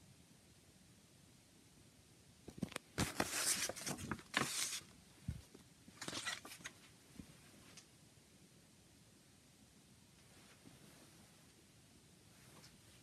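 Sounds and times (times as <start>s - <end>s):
paper rustling and crackling: 2.5s - 5.4s.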